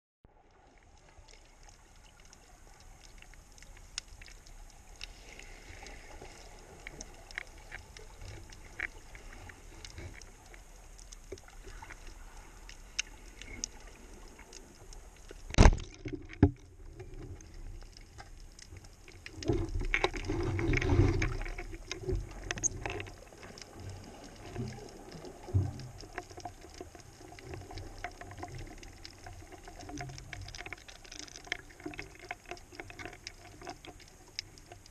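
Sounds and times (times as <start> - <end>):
underwater clicks and crackles: 0.3 - 34.9
rushing rumbling water: 2.4 - 34.9.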